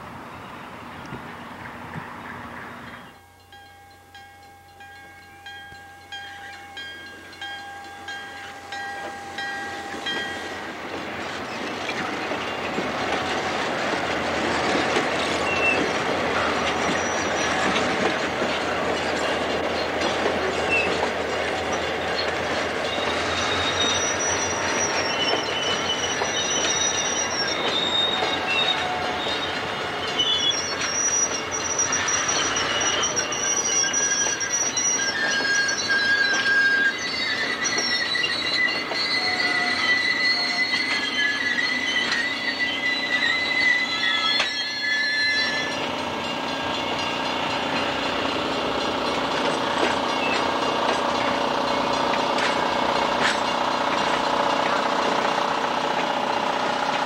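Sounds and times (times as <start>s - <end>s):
train wheels clattering: 1.0s - 57.0s
regular ringing: 3.0s - 10.9s
flange squeal: 8.1s - 57.0s
distant train horn: 27.7s - 30.3s.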